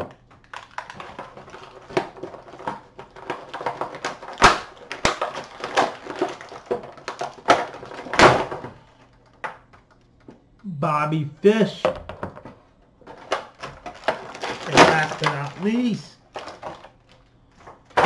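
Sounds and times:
plastic packaging crackling: 0:00.3 - 0:08.3, 0:13.0 - 0:18.0
packaging cracking loudly: 0:00.3 - 0:08.4, 0:13.1 - 0:17.3.

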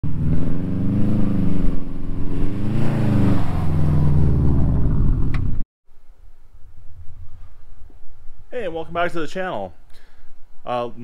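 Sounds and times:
car engine revving: 0:00.0 - 0:05.6.

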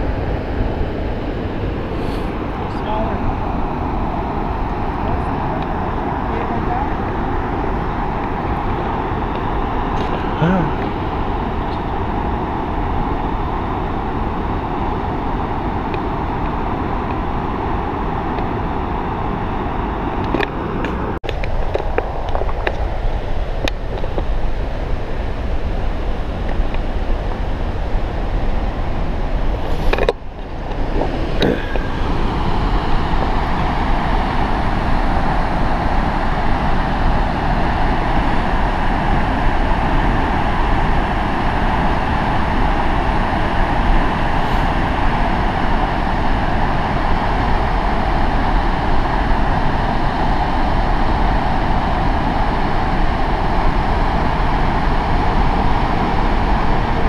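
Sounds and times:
waterfall rushing: 0:29.6 - 0:57.0.

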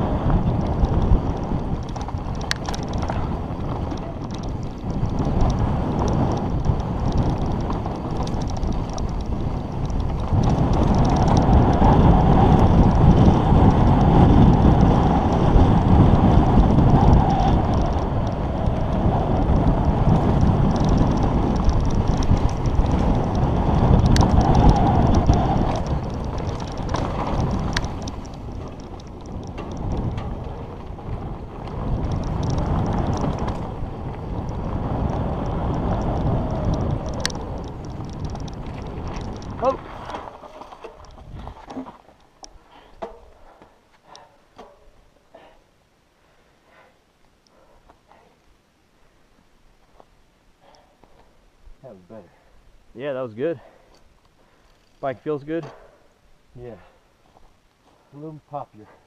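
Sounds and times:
wind buffeting microphone: 0:00.0 - 0:45.6
tyres rolling on dirt trail: 0:00.0 - 0:59.0.

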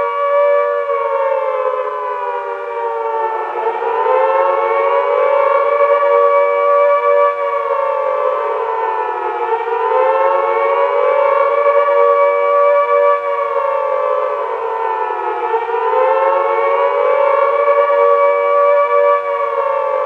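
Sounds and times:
air-raid siren wailing: 0:00.0 - 0:20.0.

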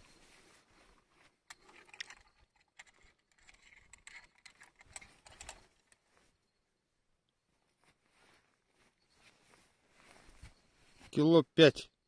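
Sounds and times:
faint clicks and rustling: 0:00.7 - 0:06.4.

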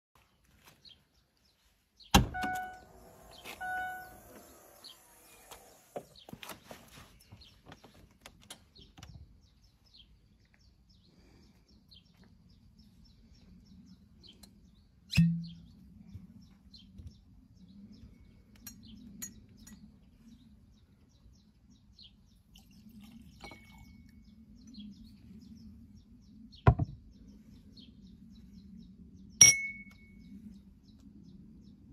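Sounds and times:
birds chirping: 0:00.3 - 0:31.9
power tailgate click: 0:02.2 - 0:06.1
short electronic beeps: 0:03.6 - 0:04.2
dull thud: 0:26.7 - 0:27.0
glassware clinking: 0:29.4 - 0:29.9.

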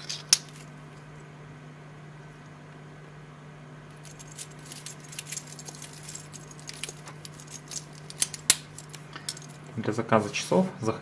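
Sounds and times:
watch bracelet links clinking: 0:04.0 - 0:09.6.

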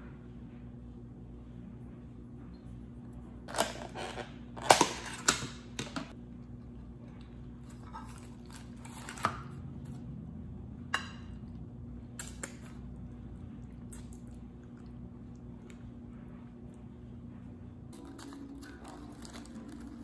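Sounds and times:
steady low hum: 0:00.0 - 0:20.0
food wet squishing: 0:11.4 - 0:16.0.

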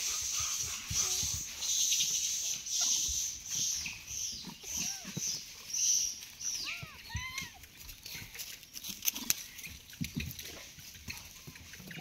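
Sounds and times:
monkey calls: 0:00.0 - 0:07.7, 0:11.0 - 0:12.0.

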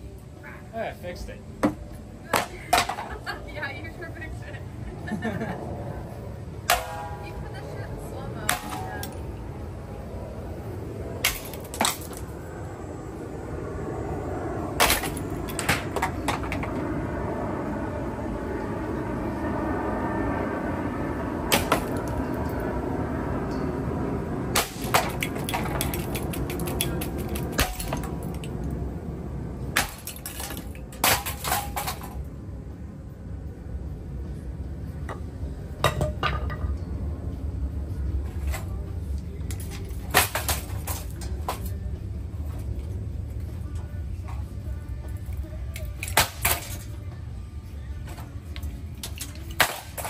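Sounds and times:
ceiling fan motor hum: 0:00.0 - 0:50.0
fan parts cracking and clattering: 0:06.6 - 0:09.4, 0:11.1 - 0:12.5, 0:14.7 - 0:16.9, 0:21.4 - 0:22.7, 0:24.4 - 0:32.4, 0:35.8 - 0:36.9, 0:38.0 - 0:47.2, 0:48.0 - 0:50.0.

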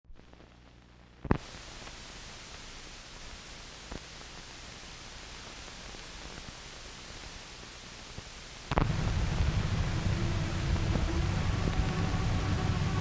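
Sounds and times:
film soundtrack hiss: 0:00.1 - 0:13.0.

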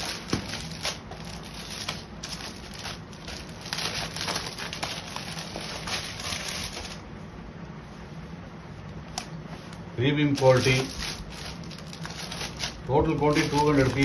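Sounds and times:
packing material rustling: 0:00.0 - 0:07.1, 0:10.2 - 0:14.0.

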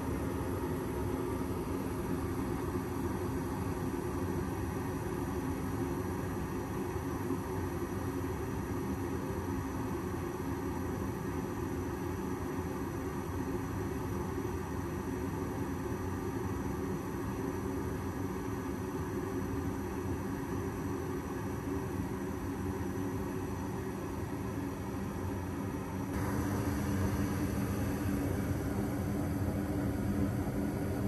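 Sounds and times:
gas furnace burner and fan hum: 0:00.0 - 0:31.0.

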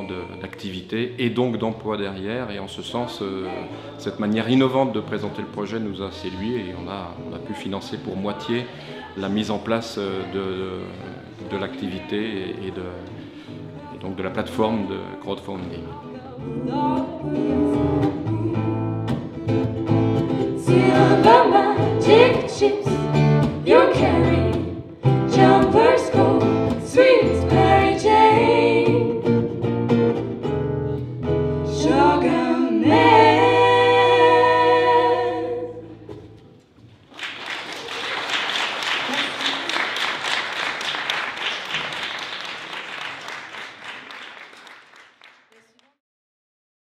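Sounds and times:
acoustic guitar: 0:00.0 - 0:37.1
women singing in harmony: 0:15.9 - 0:19.1, 0:20.4 - 0:29.3, 0:31.7 - 0:36.2
audience applause: 0:37.0 - 0:45.8.

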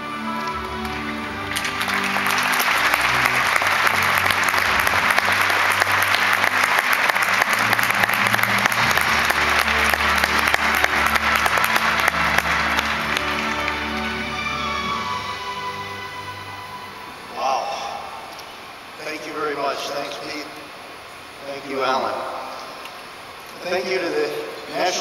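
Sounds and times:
large audience applauding: 0:00.0 - 0:16.5
background music: 0:00.0 - 0:19.3.

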